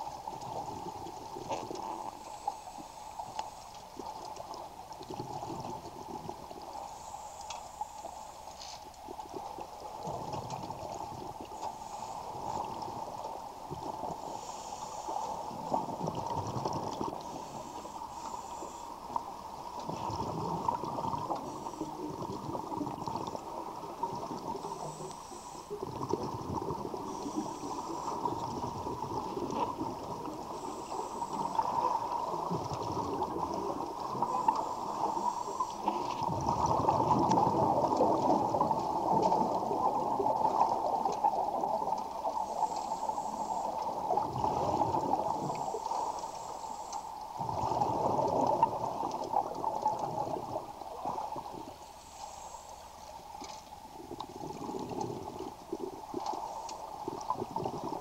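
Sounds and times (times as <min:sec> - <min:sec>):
underwater bubbles gurgling: 0:00.0 - 0:58.0
steady hum: 0:16.8 - 0:48.4.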